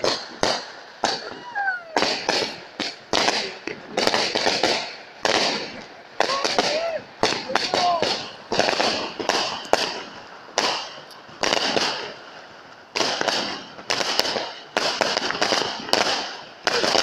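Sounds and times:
fireworks bangs: 0.0s - 17.0s.

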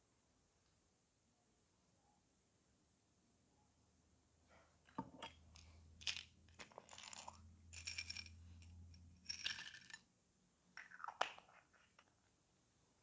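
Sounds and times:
plastic pieces rattling in a cup: 5.5s - 8.4s, 9.2s - 10.0s.

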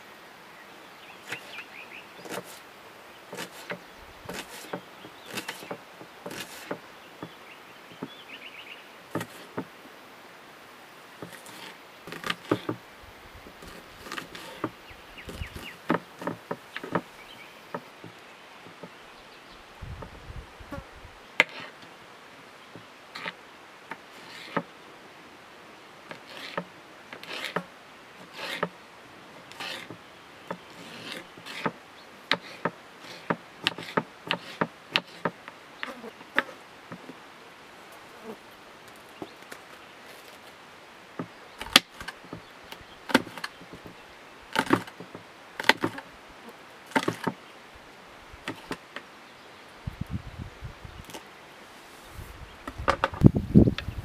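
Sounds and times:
knife chopping on wooden board: 2.2s - 2.6s, 3.3s - 6.8s.

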